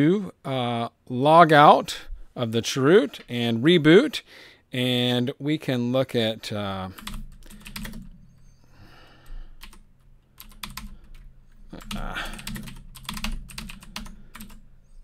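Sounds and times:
low steady hum: 6.2s - 15.0s.

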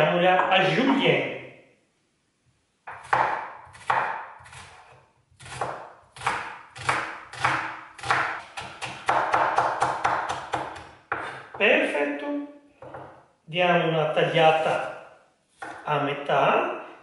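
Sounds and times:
knife chopping on cutting board: 2.9s - 11.6s, 15.6s - 15.8s.

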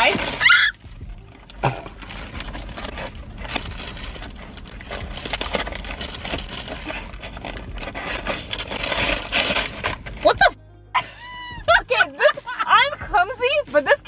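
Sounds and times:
paper wrappers rustling: 0.0s - 10.6s.

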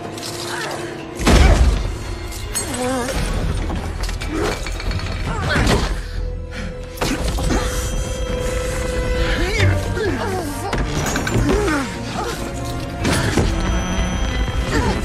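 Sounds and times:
action film music score: 0.0s - 15.0s.

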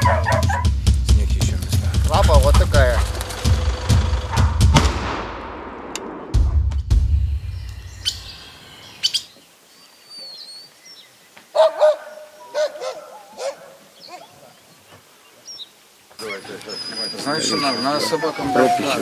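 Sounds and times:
birds chirping: 6.9s - 19.0s.

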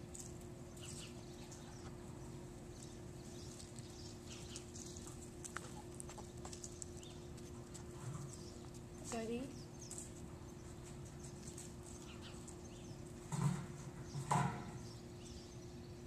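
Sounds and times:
steady low hum: 0.0s - 16.0s
puppy claws clicking on concrete: 3.3s - 9.0s.

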